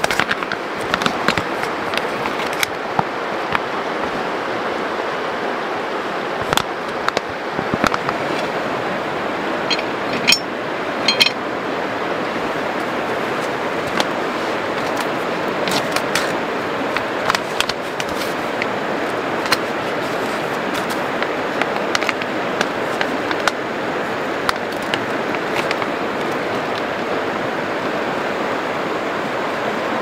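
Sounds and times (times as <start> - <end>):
river flowing: 0.0 - 30.0
plastic pouch crinkling: 14.7 - 23.6, 24.4 - 26.9.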